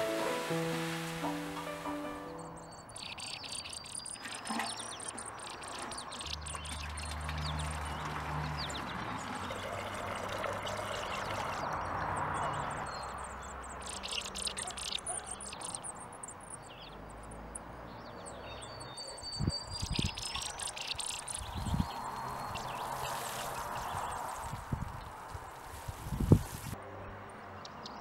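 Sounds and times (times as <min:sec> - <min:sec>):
hose water pouring into metal can: 0:00.0 - 0:02.0, 0:03.1 - 0:11.8, 0:20.0 - 0:24.7
birds chirping and whistling: 0:00.0 - 0:07.8, 0:18.3 - 0:24.3.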